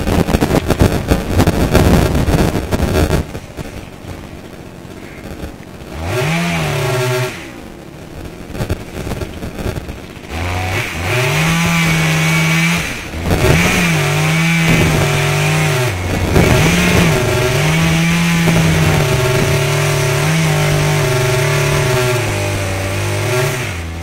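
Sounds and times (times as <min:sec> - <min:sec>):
chainsaw cutting tree trunk: 0:05.8 - 0:07.6, 0:08.6 - 0:24.0.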